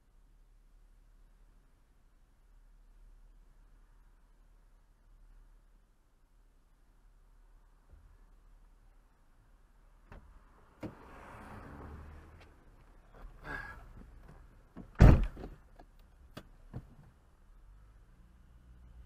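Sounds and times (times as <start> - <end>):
car door slamming shut: 14.8 - 15.6.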